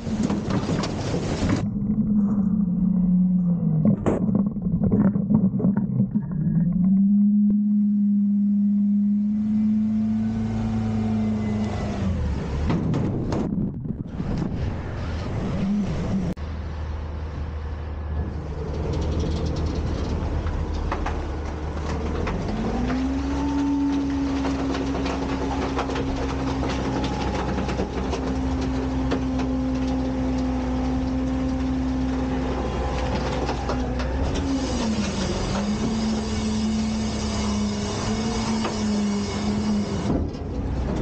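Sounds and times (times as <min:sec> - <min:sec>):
garbage truck diesel engine revving: 0:07.2 - 0:13.3, 0:14.8 - 0:41.0
metal bin clanking and rattling: 0:18.8 - 0:30.8.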